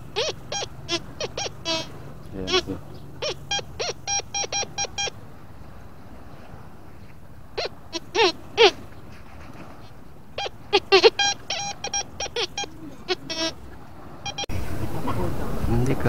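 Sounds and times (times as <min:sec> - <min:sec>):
metal detector beeps: 0:00.1 - 0:01.9, 0:02.5 - 0:05.2, 0:10.4 - 0:13.5, 0:14.2 - 0:14.5.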